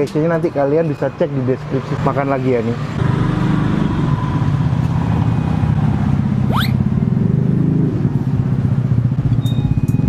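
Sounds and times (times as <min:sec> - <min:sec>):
traffic engines droning: 0:00.0 - 0:10.0
rising whistle-like sweep: 0:06.5 - 0:06.8.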